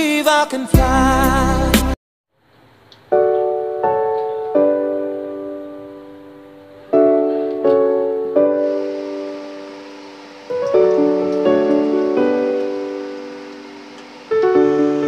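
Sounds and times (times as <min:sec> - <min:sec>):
slow piano chords: 0:03.0 - 0:15.0.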